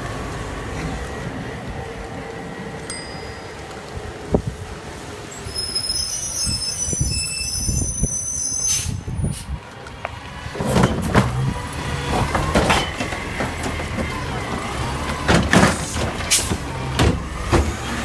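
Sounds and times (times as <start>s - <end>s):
garbage truck high squeal: 5.2s - 9.5s
heavy clattering and thuds: 10.5s - 17.8s.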